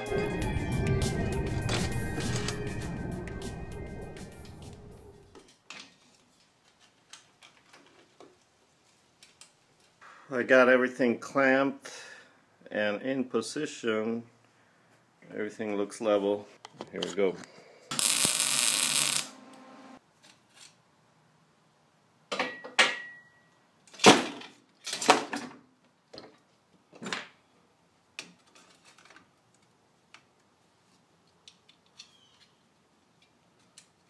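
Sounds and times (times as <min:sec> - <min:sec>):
electric arc welding buzz: 0:17.9 - 0:20.0.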